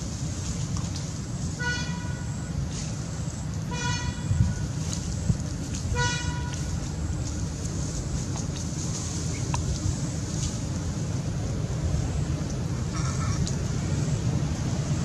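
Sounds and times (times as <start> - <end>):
wind rumble on microphone: 0.0 - 15.0
vehicle horn toots: 1.6 - 2.3, 3.7 - 4.6, 5.9 - 6.6.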